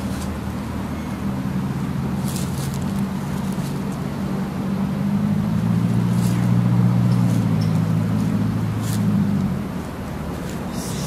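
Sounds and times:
low engine hum: 0.0 - 11.0.

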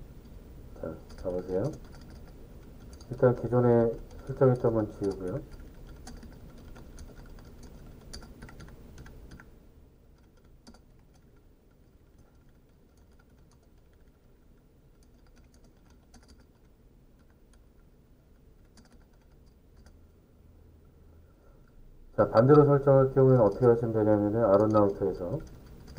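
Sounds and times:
faint keyboard typing: 0.2 - 20.2, 21.6 - 25.9.

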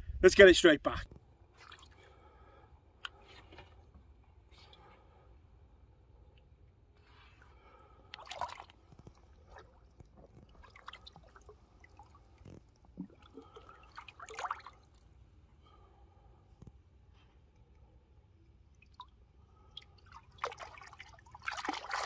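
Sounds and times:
water splashing: 8.1 - 15.1, 18.7 - 22.0
water dripping: 18.4 - 22.0.

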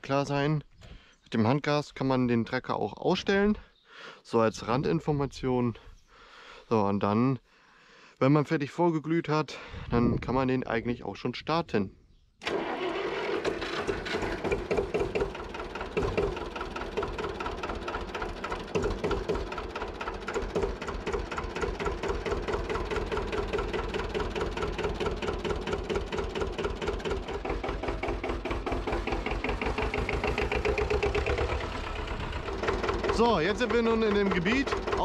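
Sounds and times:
tractor diesel engine idling: 12.5 - 35.0.

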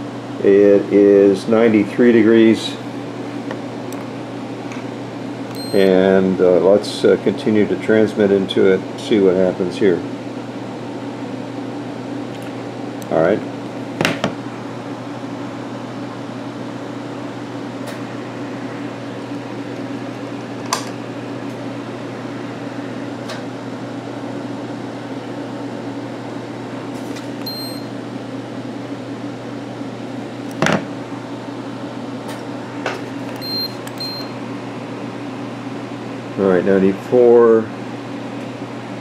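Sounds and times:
electrical mains hum: 0.0 - 39.0
fan noise: 0.0 - 39.0
short high electronic beeps: 5.6 - 5.9.

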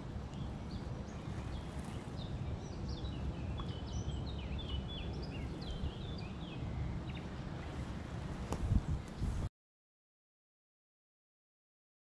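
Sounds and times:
wind noise on microphone: 0.0 - 9.5
songbirds chirping and whistling: 0.1 - 9.4.

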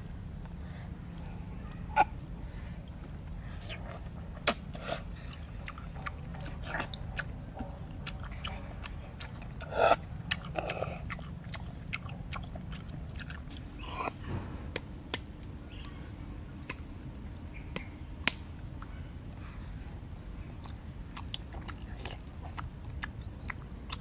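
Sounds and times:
chewing: 2.9 - 14.4, 20.4 - 24.0.

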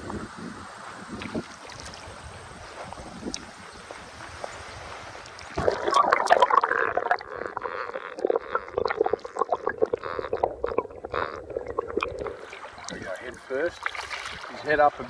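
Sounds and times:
small underwater clicks: 1.2 - 2.0, 3.2 - 3.5, 5.2 - 14.4
underwater gurgling and bubbling: 5.5 - 14.6.

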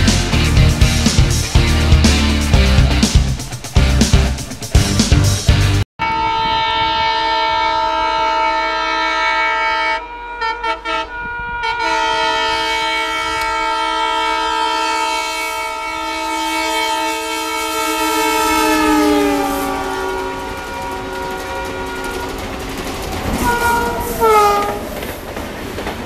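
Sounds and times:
locomotive horn blasts: 6.0 - 24.9.

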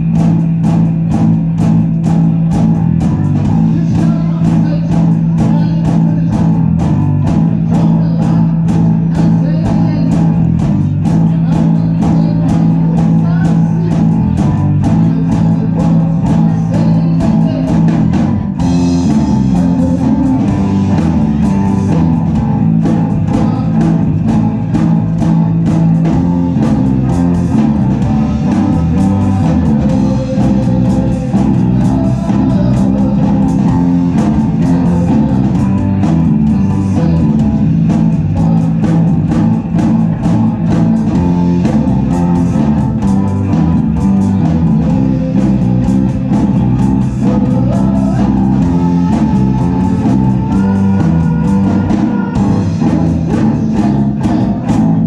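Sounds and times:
electric guitar: 0.0 - 55.0
live rock band playing: 0.0 - 55.0.

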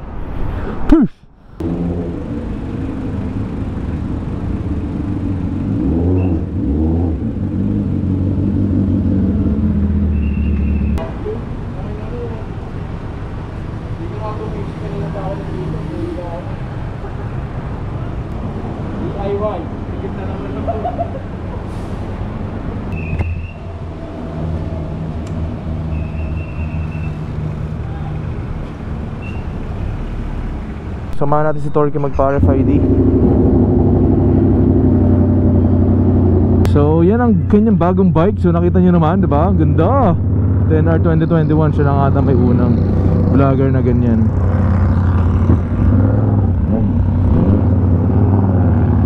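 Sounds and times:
vehicle engine running: 1.6 - 15.8, 32.2 - 49.0.

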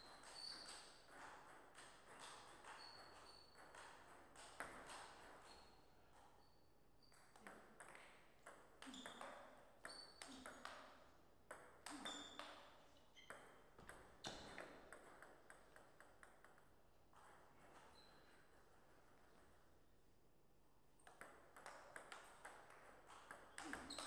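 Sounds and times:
ping pong ball hitting paddles: 0.1 - 5.5, 7.1 - 17.8, 21.0 - 24.0
ping pong ball bouncing on table: 0.2 - 5.5, 7.1 - 17.4, 21.0 - 24.0.

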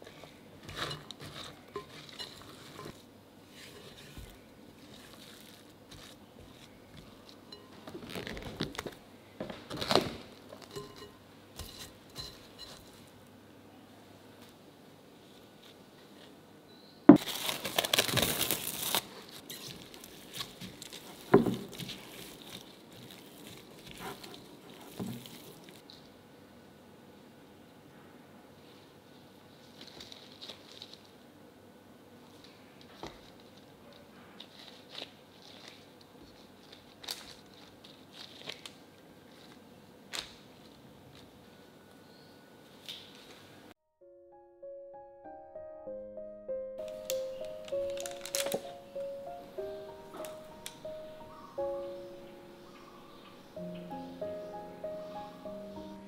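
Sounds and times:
hands working dough in bowl: 0.0 - 8.8, 19.6 - 25.9
baking paper crinkling: 3.6 - 10.8, 17.2 - 25.9, 29.6 - 31.1, 34.4 - 41.4, 46.8 - 48.9.

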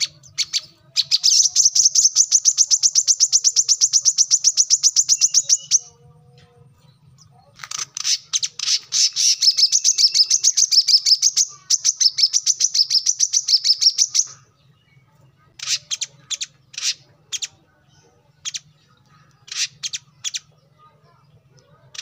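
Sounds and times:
bird singing fast high chips: 0.0 - 5.9, 7.6 - 14.5, 15.6 - 17.6, 18.4 - 20.6
bird chirps: 0.0 - 22.0.

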